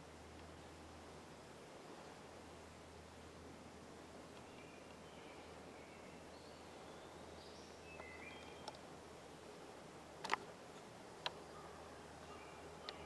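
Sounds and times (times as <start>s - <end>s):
small birds chirping: 4.1s - 9.7s, 10.3s - 13.0s
sharp clicks: 10.2s - 10.5s.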